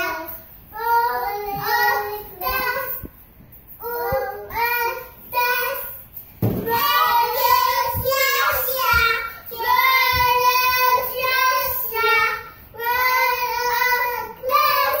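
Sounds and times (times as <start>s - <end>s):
child singing: 0.0s - 3.2s, 3.8s - 6.0s, 6.6s - 15.0s.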